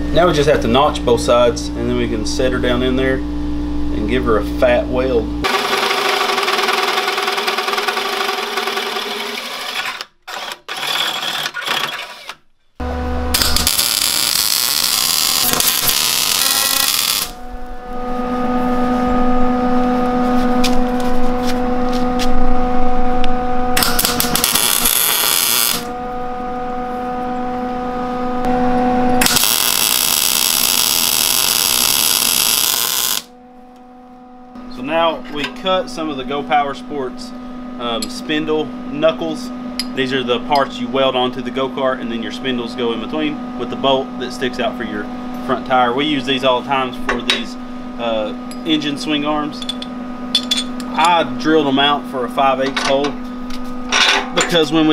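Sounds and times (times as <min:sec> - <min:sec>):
machine hum with whine: 0:00.0 - 0:54.9
hole saw cutting steel tubing: 0:05.5 - 0:12.4, 0:13.3 - 0:17.4, 0:23.8 - 0:25.9, 0:29.2 - 0:33.3
welding crackle and hiss: 0:13.4 - 0:17.4, 0:23.8 - 0:25.9, 0:29.2 - 0:33.3.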